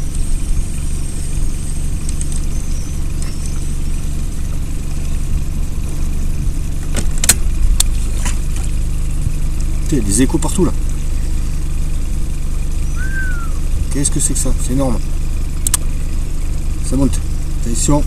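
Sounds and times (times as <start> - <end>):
boat motor running: 0.0 - 18.0
sharp clicks: 2.0 - 2.5, 15.6 - 15.9.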